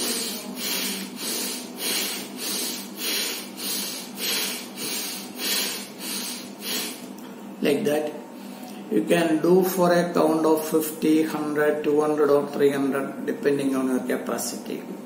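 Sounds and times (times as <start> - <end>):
man breathing forcefully: 0.0 - 7.1.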